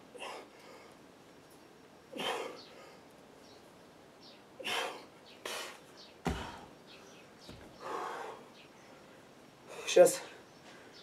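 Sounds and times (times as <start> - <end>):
man breathing heavily: 0.0 - 1.1, 2.1 - 3.2, 4.6 - 6.8, 7.7 - 10.0
kettlebell thud on dirt: 6.2 - 6.6.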